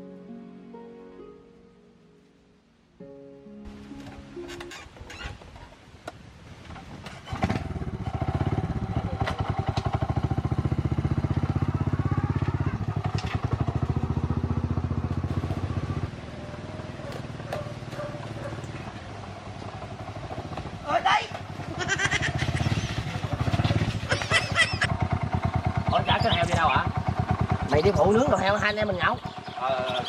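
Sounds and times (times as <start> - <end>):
small engine running: 7.4 - 30.0.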